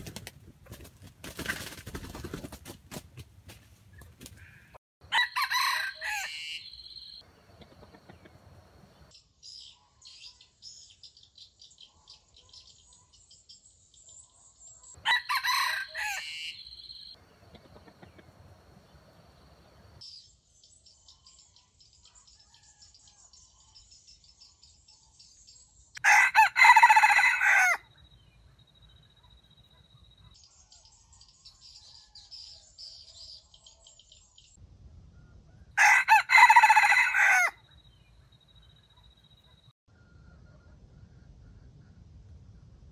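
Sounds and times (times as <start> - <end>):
roosters crowing: 4.4 - 6.8, 15.0 - 16.7, 26.0 - 27.9, 35.7 - 37.6.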